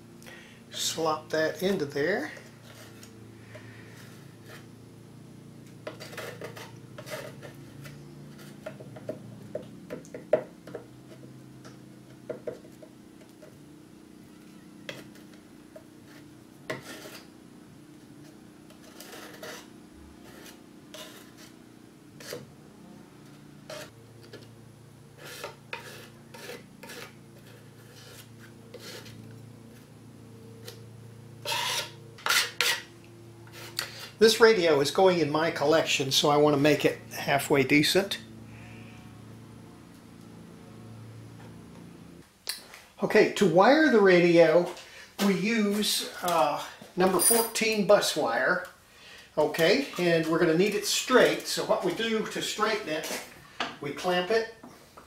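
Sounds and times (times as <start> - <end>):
putty knife scraping: 2.4 - 4.7, 5.6 - 9.1, 14.5 - 17.3, 18.2 - 21.6, 22.2 - 22.5, 23.2 - 24.5, 25.1 - 29.9, 31.4 - 34.2.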